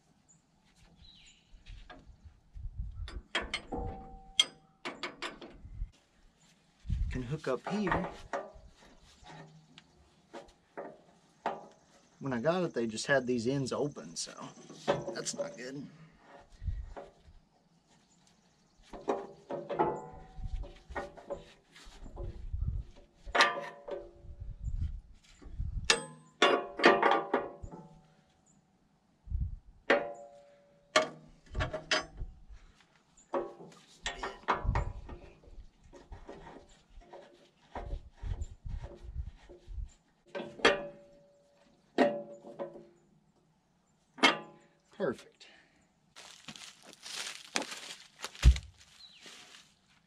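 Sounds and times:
wrench clanking on metal frame: 3.1 - 5.6, 23.3 - 24.1, 31.0 - 32.3.

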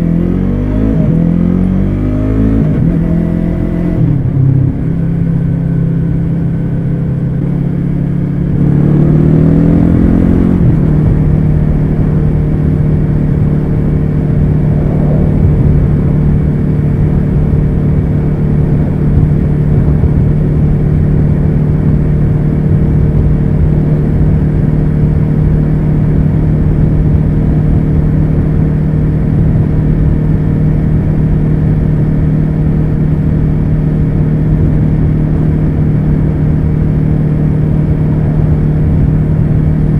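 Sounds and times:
motorcycle engine accelerating: 0.0 - 39.9
wind rushing over microphone: 8.6 - 39.9.

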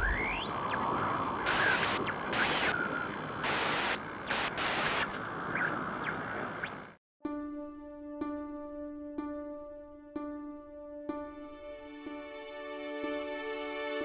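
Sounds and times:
static bursts: 0.0 - 7.0
static hiss: 0.0 - 7.0.

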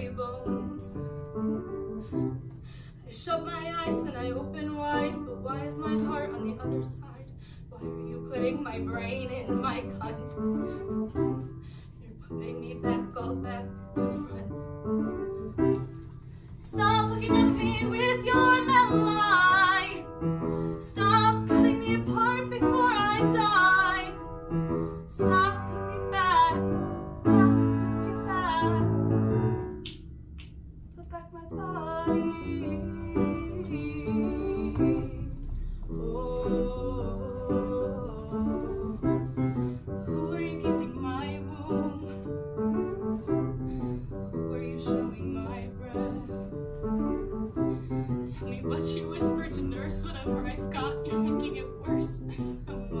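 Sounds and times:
woman singing with vibrato: 0.0 - 1.1, 3.1 - 11.0, 12.1 - 14.7, 16.6 - 20.2, 20.8 - 24.2, 25.1 - 29.0, 31.0 - 39.3, 40.0 - 42.4, 44.4 - 47.1, 48.3 - 53.0
piano accompaniment: 0.0 - 53.0.

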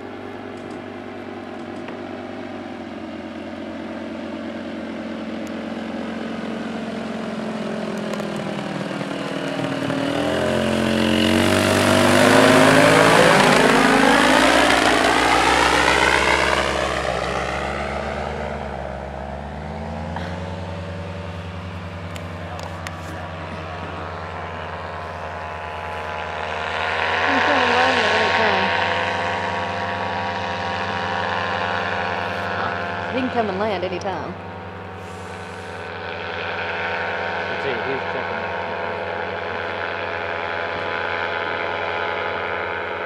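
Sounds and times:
paraglider engine droning overhead: 0.0 - 43.0.

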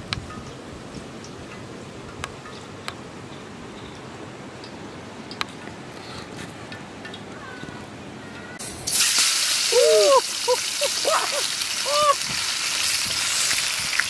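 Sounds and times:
fish sizzling in hot oil: 8.6 - 14.0.

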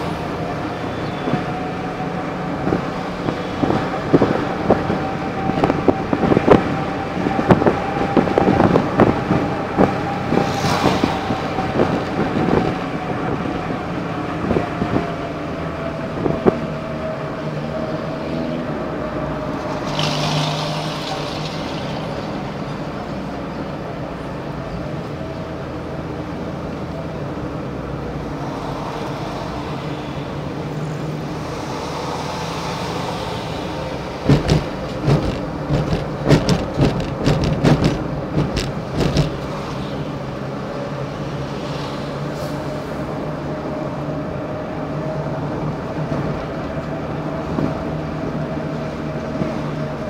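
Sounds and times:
car engine hum: 0.0 - 41.8
road noise: 0.0 - 50.0
sharp knocks and rattles: 34.2 - 39.5.

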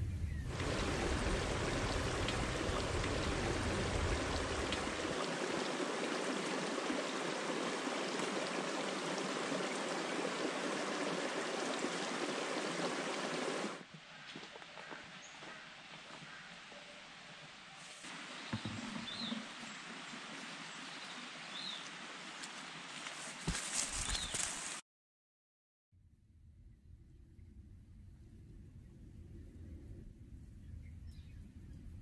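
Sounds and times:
stream running over rocks: 0.5 - 13.9, 14.7 - 24.8.

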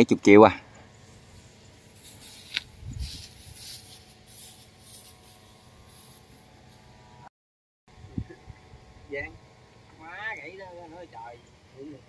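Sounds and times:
faint rustling and rubbing: 1.0 - 6.8.

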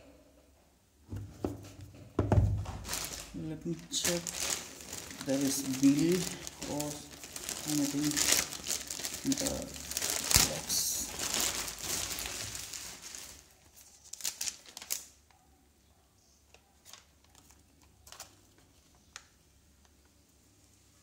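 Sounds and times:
packaging rustling and crinkling: 2.5 - 15.2, 16.5 - 19.3.

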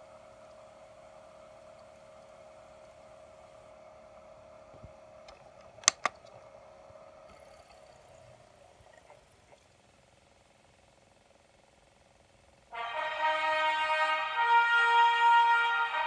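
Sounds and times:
faint steady hum: 0.0 - 16.0
sharp clicks: 5.2 - 6.4.

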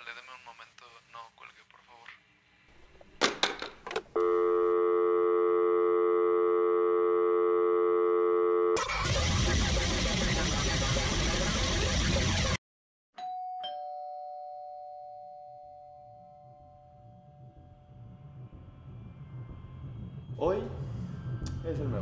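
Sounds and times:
telephone dial tone: 4.2 - 8.8.

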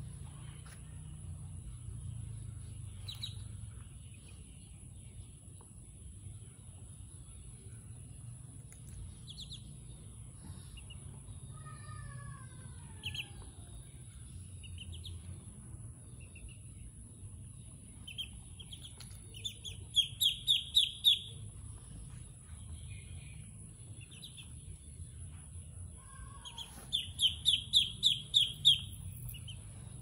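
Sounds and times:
ducklings peeping: 2.8 - 4.9, 8.6 - 11.4, 12.8 - 25.3, 26.1 - 29.7.

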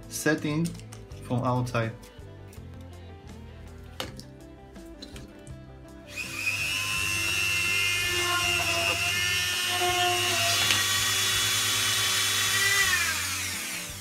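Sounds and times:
rotary tool whining: 6.1 - 14.0.

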